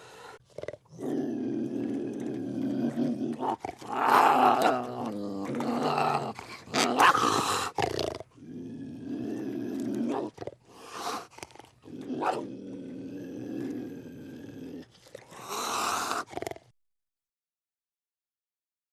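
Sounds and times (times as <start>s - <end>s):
animal growling and roaring: 0.6s - 16.7s.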